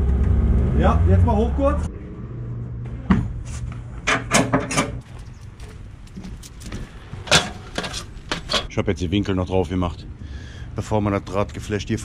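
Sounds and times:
low engine hum: 0:00.0 - 0:03.4.

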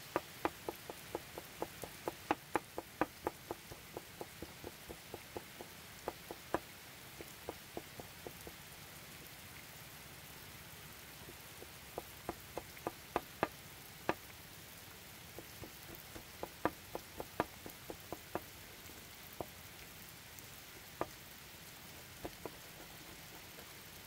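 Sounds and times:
faint hiss: 0:00.0 - 0:24.0.

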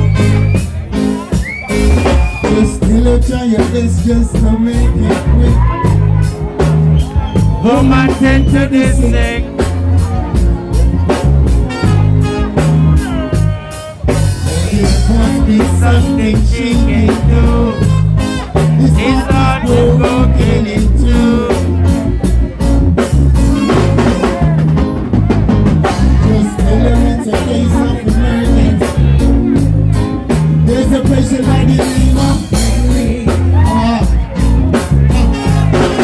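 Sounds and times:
bass guitar: 0:00.0 - 0:36.0
drum kit beat: 0:00.0 - 0:36.0
person singing lead: 0:07.6 - 0:10.1, 0:13.0 - 0:22.1, 0:25.9 - 0:29.4, 0:30.6 - 0:34.2.

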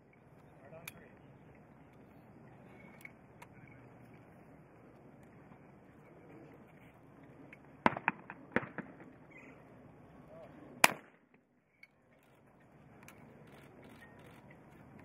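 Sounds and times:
shotgun shot with echo: 0:07.8 - 0:09.1, 0:10.8 - 0:11.1.

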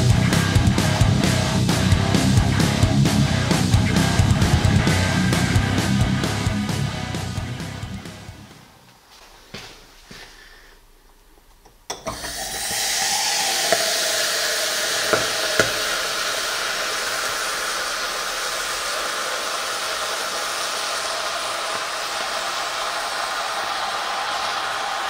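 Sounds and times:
sharp pops: 0:15.0 - 0:16.2.

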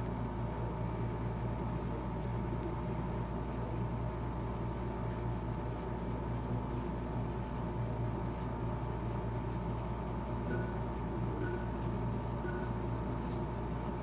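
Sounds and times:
steady low hum: 0:00.0 - 0:14.0
faint steady tone: 0:10.3 - 0:13.1.

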